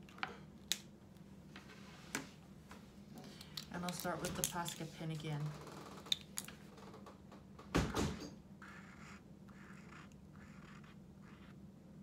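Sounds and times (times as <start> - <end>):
marker scratching on card: 8.6 - 11.6.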